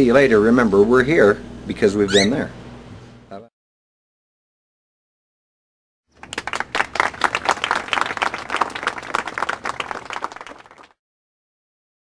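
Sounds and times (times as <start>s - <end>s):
many hands clapping: 6.2s - 11.0s.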